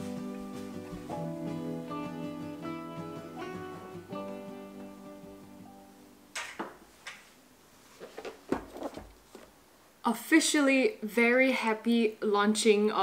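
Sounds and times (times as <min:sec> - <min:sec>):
acoustic guitar music: 0:00.0 - 0:06.4
objects being handled: 0:06.4 - 0:09.6.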